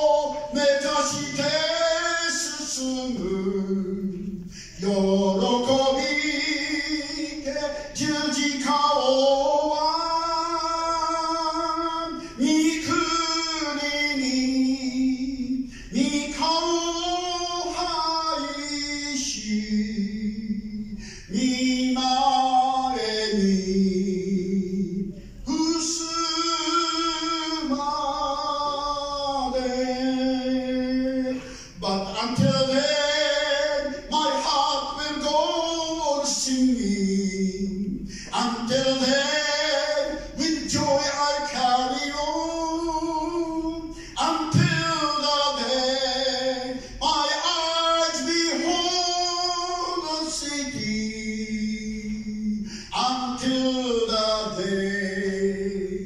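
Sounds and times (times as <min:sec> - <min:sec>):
person singing a hymn unaccompanied: 0:00.0 - 0:56.0
breaths: 0:04.4 - 0:04.8, 0:12.2 - 0:12.4, 0:15.7 - 0:16.0, 0:20.9 - 0:21.3, 0:25.1 - 0:25.4, 0:31.3 - 0:31.8, 0:38.0 - 0:38.4, 0:43.9 - 0:44.2, 0:46.8 - 0:47.0, 0:52.6 - 0:53.0.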